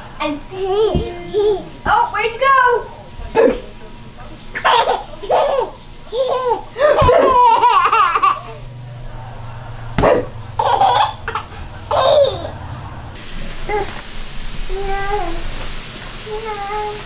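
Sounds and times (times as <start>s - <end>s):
baby laughing and giggling: 1.2s - 1.8s, 4.6s - 8.6s, 10.6s - 12.6s.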